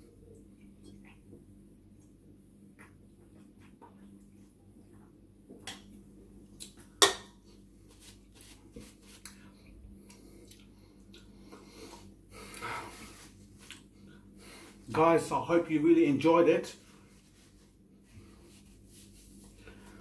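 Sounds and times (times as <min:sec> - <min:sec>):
paper napkin rustling: 0:07.8 - 0:09.2, 0:16.7 - 0:19.7.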